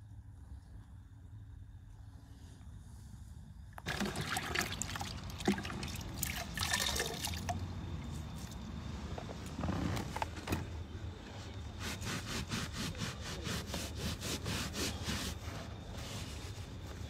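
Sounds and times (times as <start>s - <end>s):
water sloshing in a bucket: 3.8s - 8.6s.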